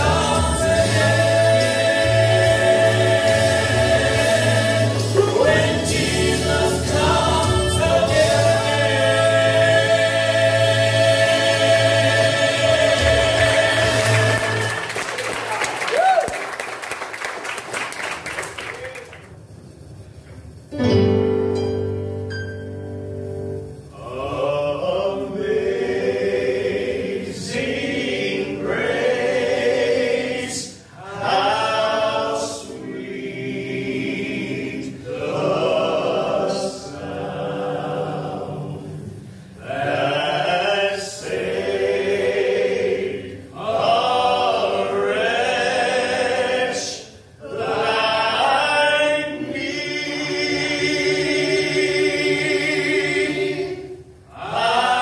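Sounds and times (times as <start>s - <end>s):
men singing in close harmony: 0.0s - 15.0s, 24.0s - 55.0s.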